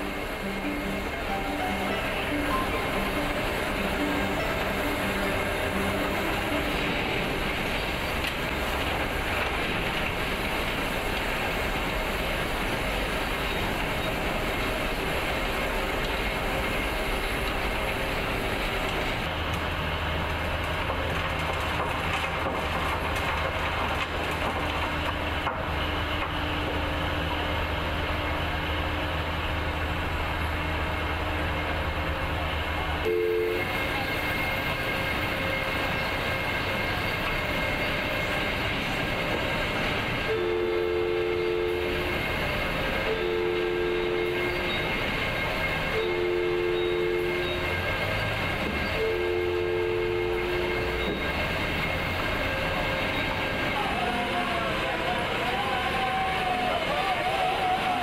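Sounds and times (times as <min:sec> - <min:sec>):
two-note tone: 0:00.0 - 0:09.1, 0:33.0 - 0:36.1, 0:40.2 - 0:42.2, 0:43.0 - 0:51.4
vehicles running: 0:00.0 - 0:58.0.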